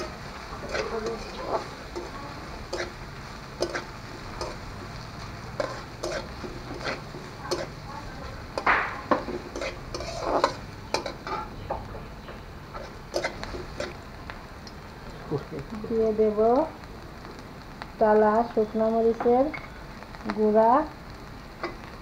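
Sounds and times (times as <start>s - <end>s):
metal spatula scraping a pan: 0.0s - 7.9s, 8.5s - 11.7s, 12.7s - 14.0s
onions sizzling in oil: 0.0s - 22.0s.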